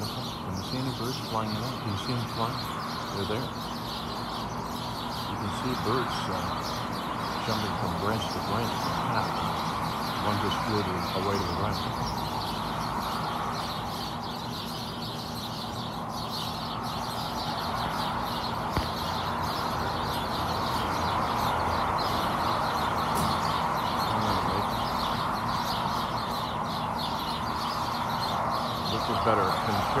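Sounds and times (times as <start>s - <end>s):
birds chirping: 0.0s - 30.0s.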